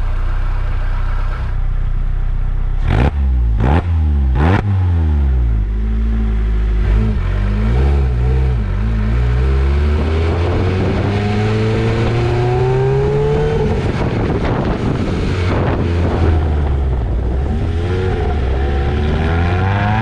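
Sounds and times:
car engine revving: 2.3s - 20.0s
exhaust cracks: 10.0s - 20.0s.

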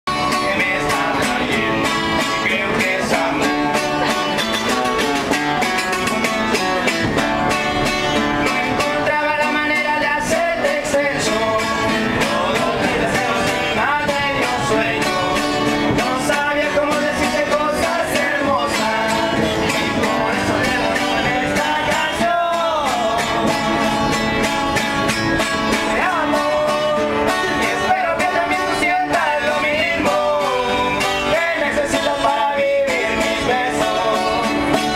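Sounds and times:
people singing: 0.1s - 34.9s
strummed guitar: 0.1s - 34.9s.

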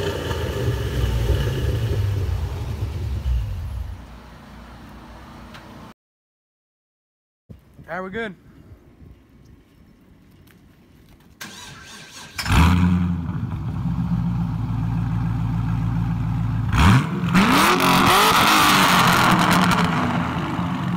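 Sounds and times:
car engine starting and idling: 0.0s - 5.9s, 11.4s - 20.9s
car engine revving: 16.5s - 20.9s.

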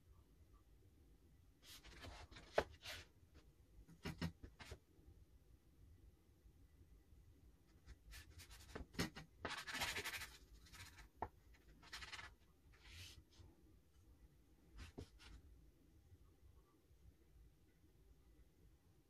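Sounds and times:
brush strokes on paper: 9.4s - 13.4s.

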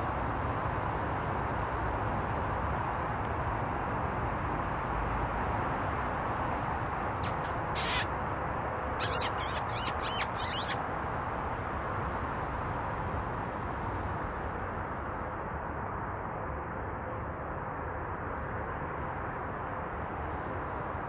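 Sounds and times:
person making high squeaks: 7.2s - 8.1s, 9.0s - 10.8s.

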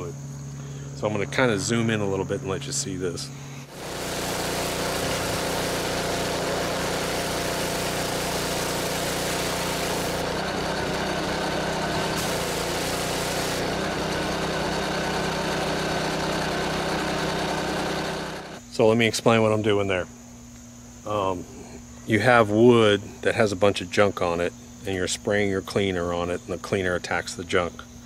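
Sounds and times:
pressure washer engine running: 3.2s - 18.6s
water jet hissing on wood: 3.7s - 15.5s.

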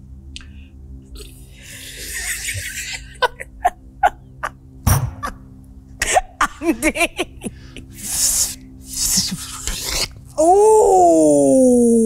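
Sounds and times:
wavering vocal warble: 7.9s - 12.0s
mouth hiss: 8.0s - 10.1s.

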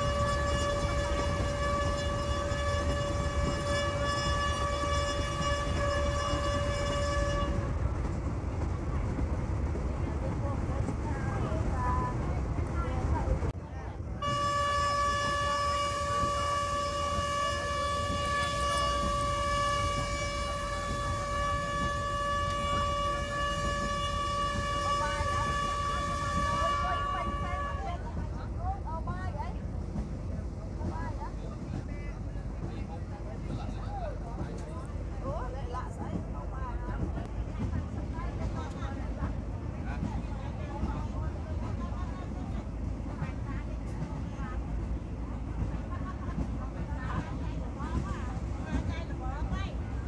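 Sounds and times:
train horn: 0.0s - 7.8s, 14.2s - 28.2s
train rumbling on track: 0.0s - 50.0s.

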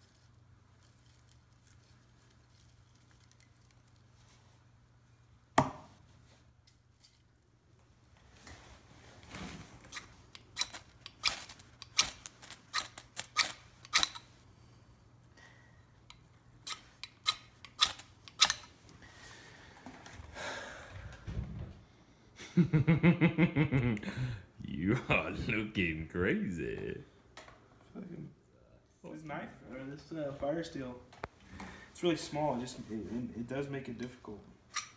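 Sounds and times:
knife scraping fire steel: 9.9s - 14.3s, 16.6s - 18.7s
man speaking: 24.6s - 27.1s.

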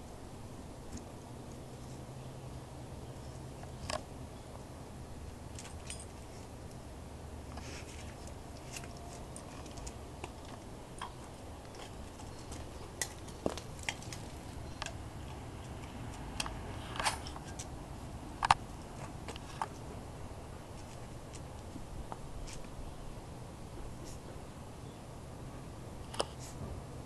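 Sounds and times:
dog paws scratching dirt and chips: 7.5s - 17.7s, 20.7s - 22.8s.

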